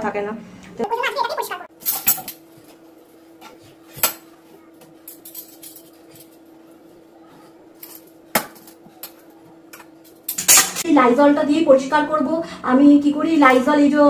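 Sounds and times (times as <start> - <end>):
steel pots and pans clanking: 5.0 - 6.4, 7.8 - 10.8.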